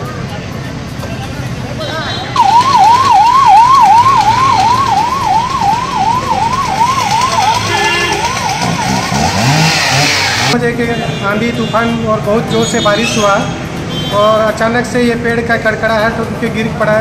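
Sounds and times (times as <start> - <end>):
low traffic noise: 0.0 - 17.0
ambulance siren warbling: 2.4 - 10.6.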